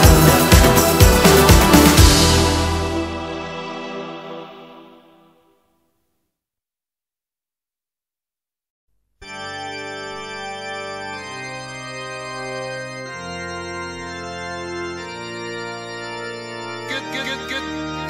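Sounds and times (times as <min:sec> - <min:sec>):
organ-like held chords: 0:00.0 - 0:05.0, 0:09.2 - 0:18.0.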